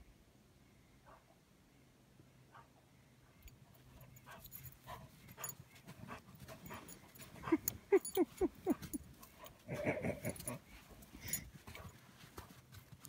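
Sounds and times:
dog whimpering: 7.4 - 9.0.

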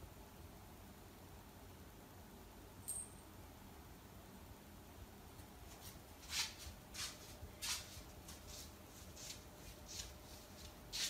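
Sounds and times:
cat paws on wooden floor: 5.6 - 11.0.

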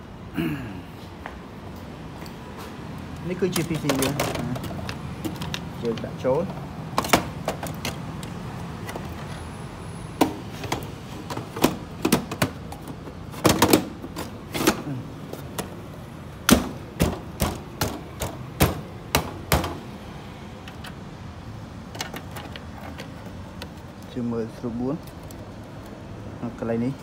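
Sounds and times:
clicks and knocks of computer parts: 3.1 - 9.3, 10.2 - 15.8, 16.4 - 19.9, 21.9 - 24.0.

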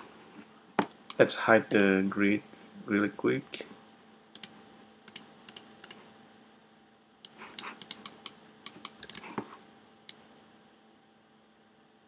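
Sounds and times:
mouse clicks: 4.4 - 6.0, 7.2 - 9.4
keyboard keystrokes: 7.5 - 9.3.

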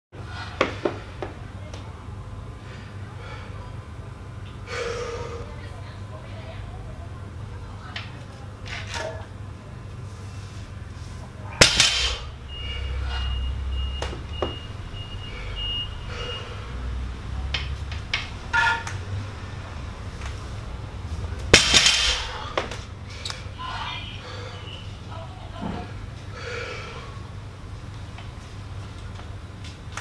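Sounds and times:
barbell clanking onto blocks: 11.6 - 12.2, 21.5 - 22.4
weight plates rattling: 21.5 - 22.6.

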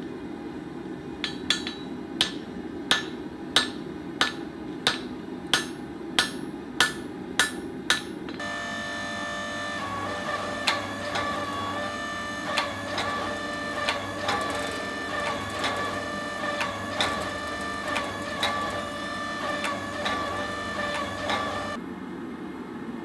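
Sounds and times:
hydraulic pump whine: 8.4 - 21.8.

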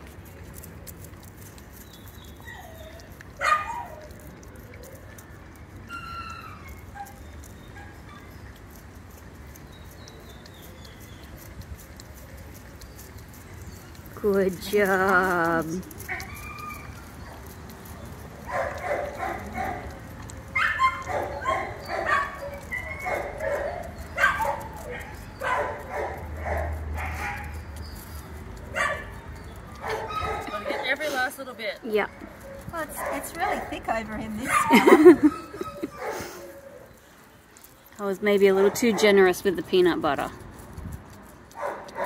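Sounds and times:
dog whining and yelping: 1.9 - 8.6, 15.4 - 31.2, 32.1 - 33.8, 34.4 - 37.1
dog barking: 20.6 - 27.5, 28.8 - 29.1, 41.6 - 42.0.

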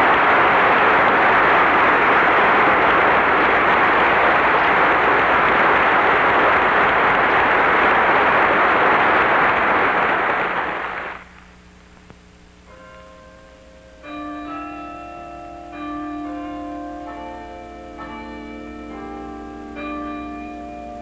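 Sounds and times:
audience applauding: 0.0 - 11.3.

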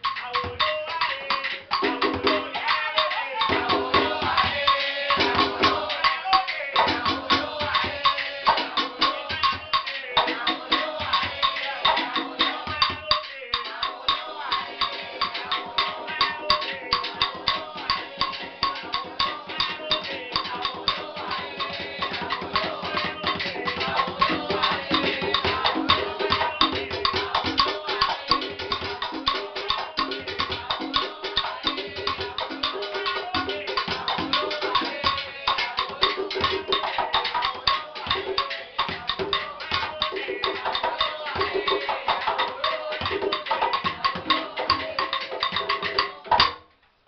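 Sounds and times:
conga drum: 0.0 - 46.7
cajon played by hand: 13.9 - 46.6.

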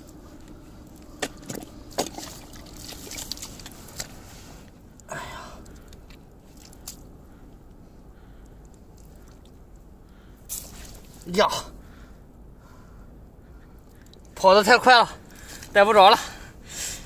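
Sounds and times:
wet squelch: 0.1 - 7.4, 8.4 - 9.9, 10.5 - 11.3, 15.2 - 15.8
shovel striking mud: 1.2 - 4.2.

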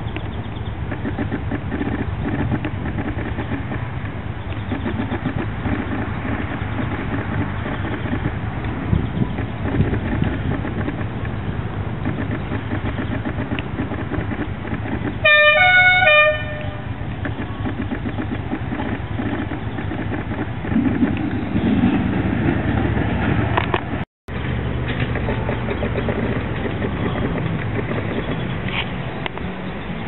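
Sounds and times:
miniature train mechanical hum: 0.0 - 30.0
two-tone train horn: 15.2 - 17.0.

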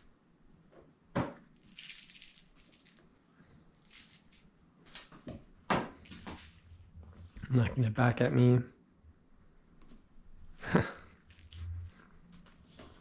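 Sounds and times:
soft rustling: 9.5 - 13.0.

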